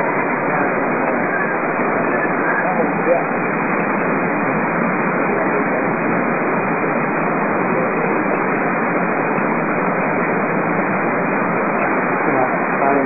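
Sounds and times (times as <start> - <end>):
steady hiss: 0.0 - 13.0.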